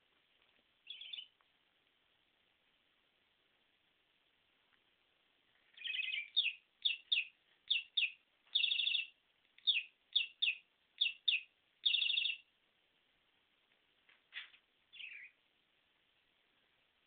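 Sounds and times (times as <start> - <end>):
budgerigar chirping: 0.8 - 1.3, 5.8 - 12.5, 14.9 - 15.4
budgerigar buzzy calls: 9.7 - 12.4.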